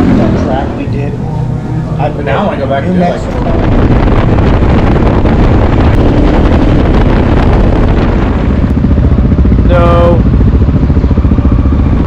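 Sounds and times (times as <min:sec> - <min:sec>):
wind buffeting microphone: 0:02.4 - 0:12.0
dirt bike engine running: 0:03.4 - 0:12.0.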